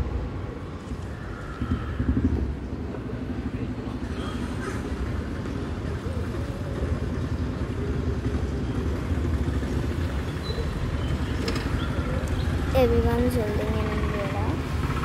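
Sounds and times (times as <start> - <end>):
low rumble of city ambience: 0.0 - 15.0.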